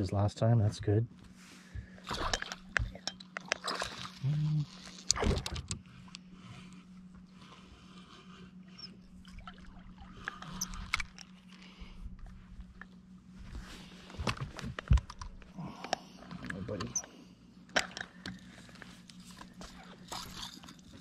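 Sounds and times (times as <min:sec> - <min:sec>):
faint steady hum: 0:00.0 - 0:21.0
fishing reel clicks and rattles: 0:16.5 - 0:21.0.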